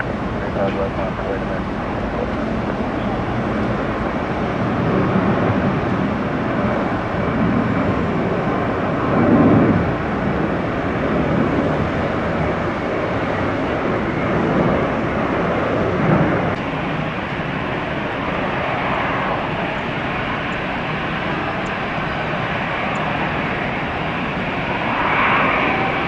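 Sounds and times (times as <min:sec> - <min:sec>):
jet airliner engine rumble: 0:00.0 - 0:26.0.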